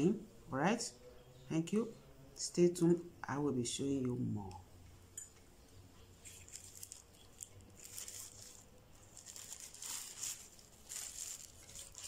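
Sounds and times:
packaging wrapper crinkling: 6.2s - 12.0s.

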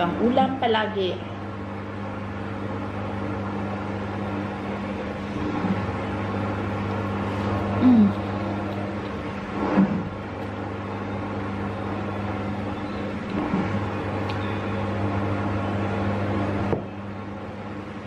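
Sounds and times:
low appliance hum: 0.0s - 18.0s
close eating sounds: 5.0s - 10.8s
mouth sound: 7.6s - 10.2s
person humming: 7.8s - 8.5s.

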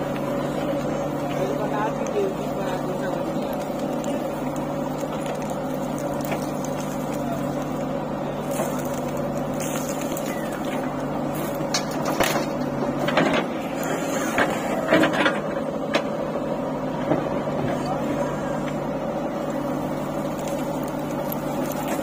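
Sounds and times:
diesel engine running: 0.0s - 22.0s
soil and stones clattering in bucket: 0.7s - 15.5s, 19.5s - 22.0s.

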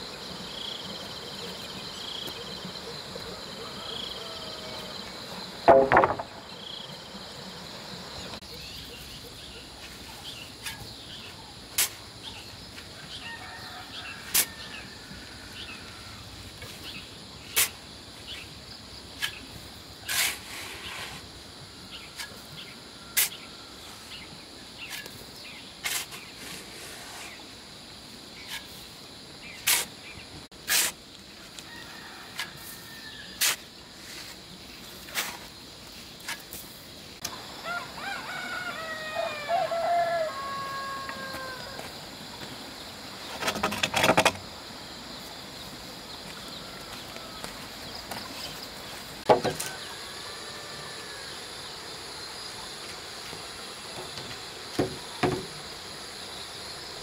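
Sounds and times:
faint rural background: 0.0s - 57.0s
sharp knocks: 5.6s - 6.5s.

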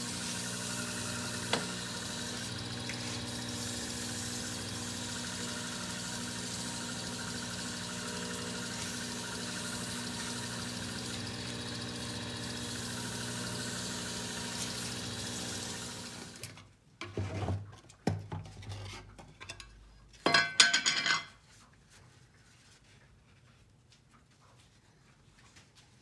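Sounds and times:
lathe motor running: 0.0s - 16.5s.

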